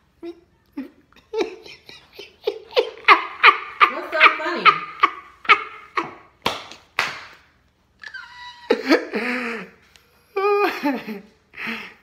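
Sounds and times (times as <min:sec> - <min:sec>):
man laughing: 0:00.2 - 0:06.3
hand slapping down: 0:06.4 - 0:07.5.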